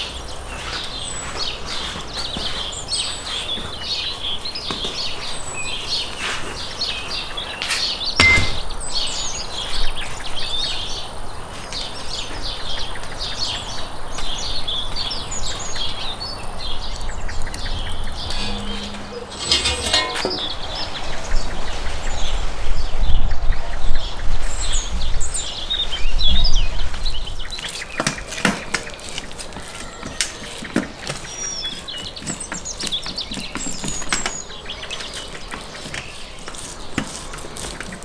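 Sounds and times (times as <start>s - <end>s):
birds chirping: 0.0s - 22.9s, 24.6s - 38.0s
knife slicing meat: 35.8s - 38.0s.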